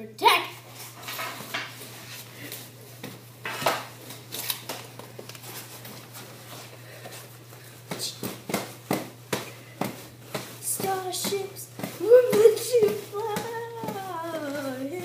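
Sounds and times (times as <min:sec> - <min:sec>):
steady low hum: 0:00.0 - 0:15.0
hockey gear rustling and knocking: 0:04.6 - 0:15.0.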